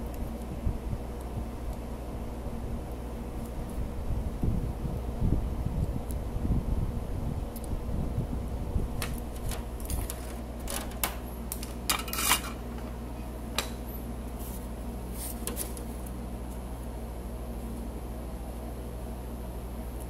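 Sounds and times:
low fan hum: 0.0 - 20.0.

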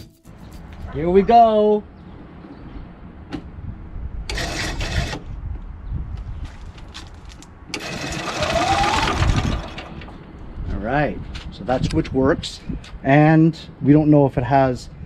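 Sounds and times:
engine cranking without firing: 4.2 - 5.4, 7.7 - 10.2.

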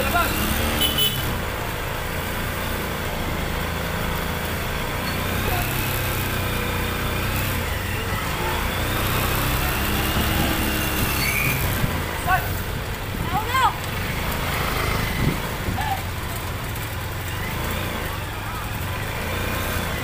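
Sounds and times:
busy street market noise: 0.0 - 20.0
vehicle engine running: 0.0 - 20.0.

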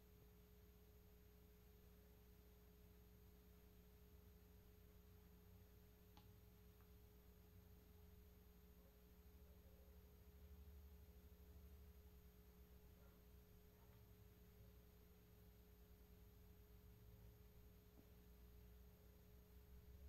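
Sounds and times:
faint steady hum: 0.0 - 20.0
faint click: 6.1 - 6.9.

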